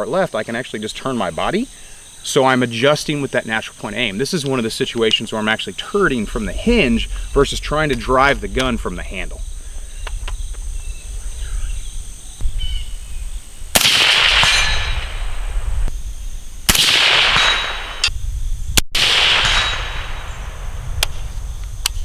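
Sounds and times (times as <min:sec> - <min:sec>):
suppressed rifle shots: 0:13.7 - 0:15.2, 0:16.7 - 0:18.1, 0:19.0 - 0:20.3.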